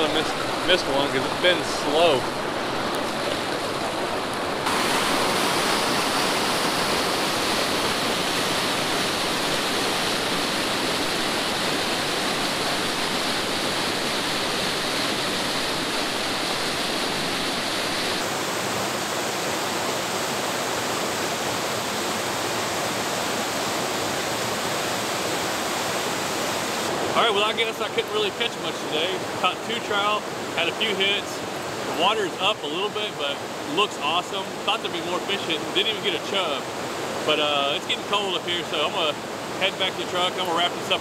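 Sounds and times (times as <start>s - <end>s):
mountain creek rushing: 0.0s - 41.0s.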